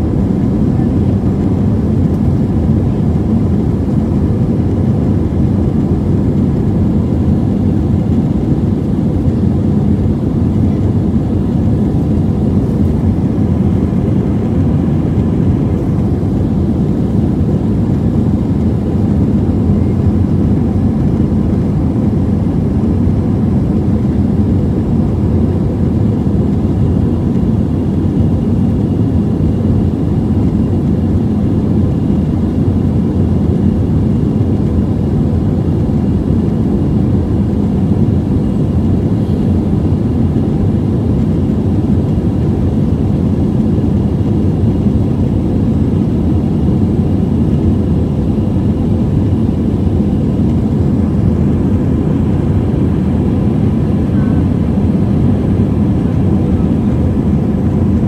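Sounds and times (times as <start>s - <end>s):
faint steady hums: 0.0s - 58.0s
jet engine rumble: 0.0s - 58.0s.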